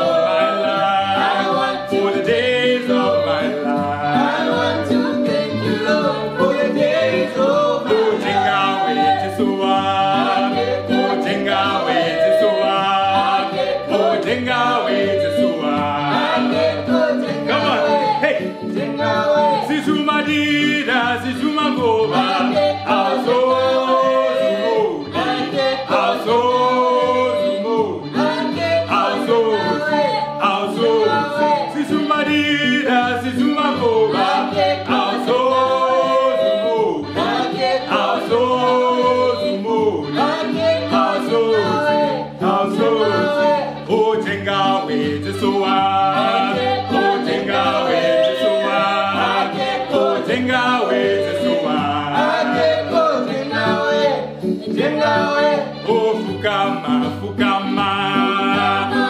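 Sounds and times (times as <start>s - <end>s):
group singing in harmony: 0.0s - 59.0s.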